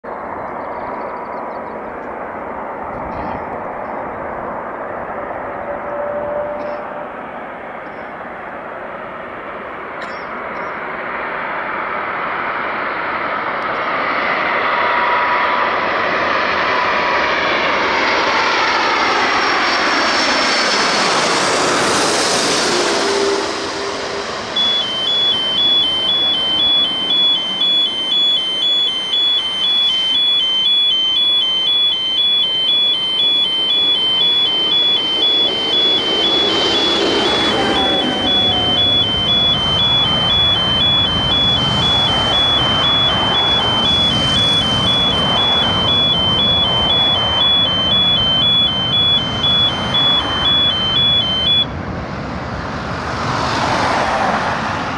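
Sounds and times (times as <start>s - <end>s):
jet plane passing overhead: 0.1s - 54.9s
car alarm two-tone wailing: 5.6s - 8.2s, 16.5s - 51.7s.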